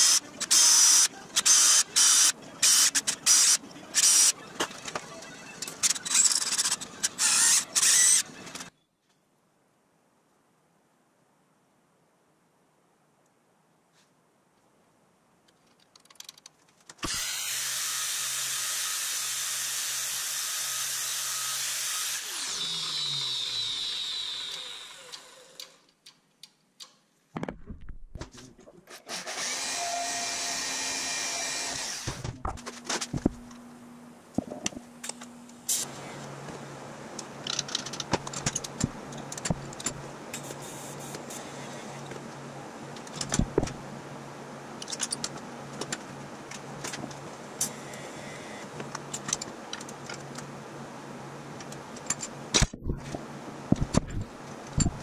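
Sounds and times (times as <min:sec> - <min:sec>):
motor running and winding down: 0:06.0 - 0:08.6, 0:17.0 - 0:25.7, 0:29.1 - 0:32.2
metal-cutting band saw: 0:17.0 - 0:25.6.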